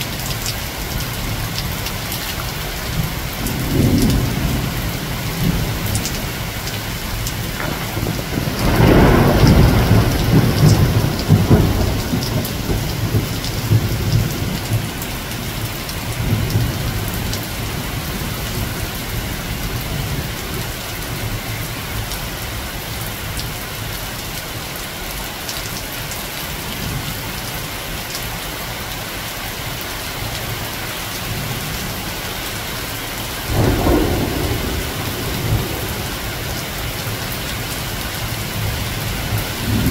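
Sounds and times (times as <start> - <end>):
rain falling on leaves: 0.0 - 39.9
thunder rumbling: 2.4 - 22.7, 33.4 - 39.9.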